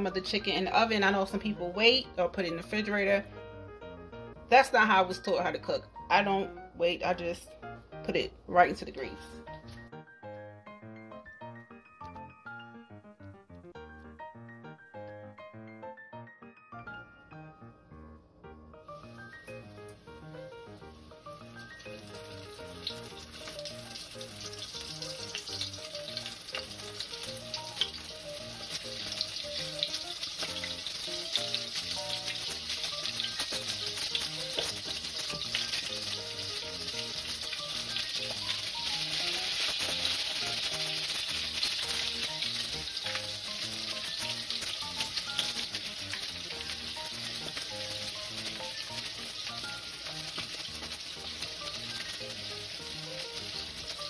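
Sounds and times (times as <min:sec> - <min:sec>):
chicken deep-frying in oil: 0:18.9 - 0:54.0.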